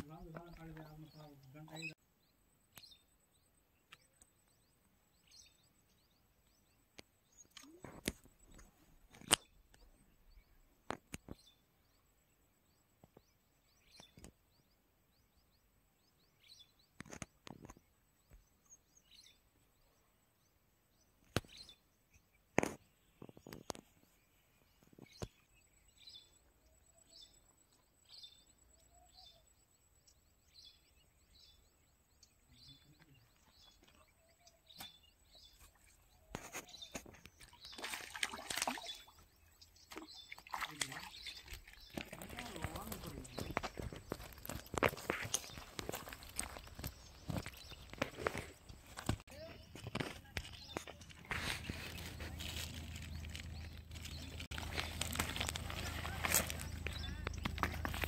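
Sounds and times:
small bird chirping: 0:00.0 - 0:20.1, 0:20.9 - 0:58.0
eel splashing in water: 0:37.7 - 0:39.2.

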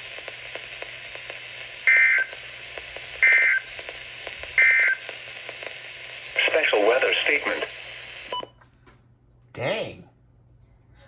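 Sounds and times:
faint radio hiss: 0:00.0 - 0:08.5.

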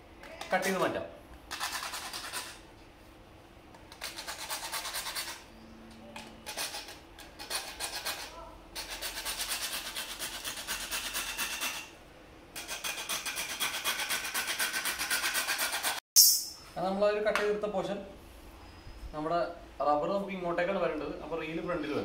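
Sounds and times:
hacksaw sawing plastic pipe: 0:06.5 - 0:11.9, 0:12.6 - 0:16.0.

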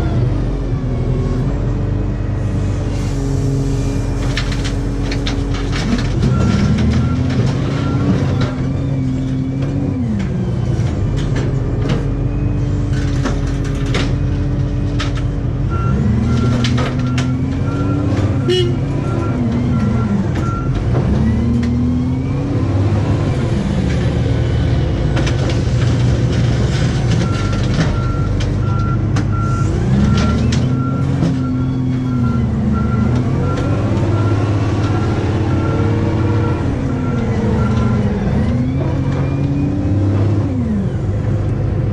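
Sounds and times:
diesel loader engine revving: 0:00.0 - 0:41.9
metal clanks and rattles: 0:04.2 - 0:18.4.

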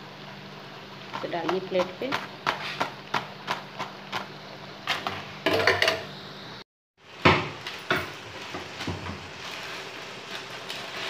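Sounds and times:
oil sizzling: 0:00.0 - 0:11.0
wire skimmer scraping a pan: 0:08.0 - 0:11.0.

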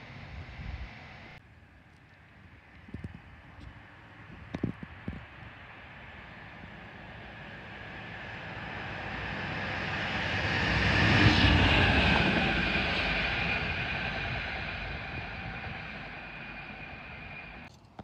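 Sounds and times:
diesel locomotive engine: 0:00.0 - 0:17.7
high whine: 0:02.7 - 0:17.7.

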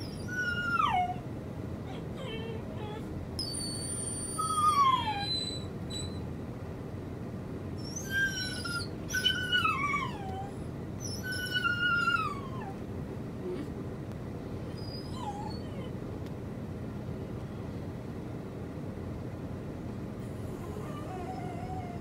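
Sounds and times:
puppy whining: 0:00.0 - 0:06.3, 0:07.8 - 0:12.8, 0:13.4 - 0:13.8, 0:14.7 - 0:16.0, 0:20.2 - 0:22.0.

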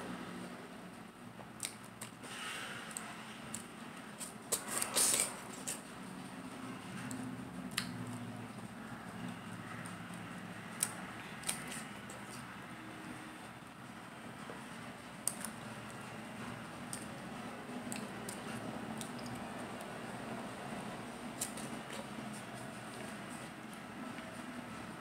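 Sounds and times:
wet mouth chewing sounds: 0:09.3 - 0:12.6, 0:17.8 - 0:20.0.

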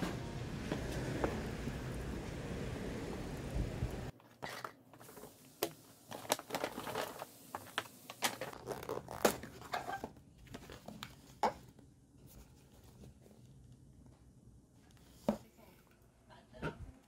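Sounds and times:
street noise: 0:00.0 - 0:04.1
paper bag and cardboard boxes handled: 0:06.0 - 0:13.5.

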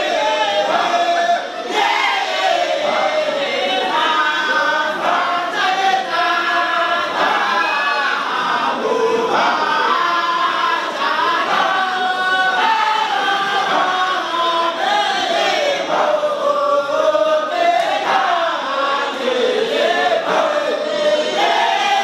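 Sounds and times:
men chanting devotional song: 0:00.0 - 0:22.0.

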